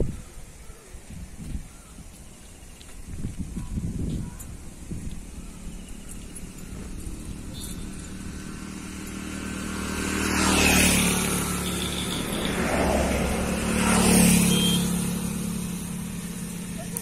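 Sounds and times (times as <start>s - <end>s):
vehicles passing on road: 0.0s - 17.0s
motorcycle passing: 4.5s - 17.0s.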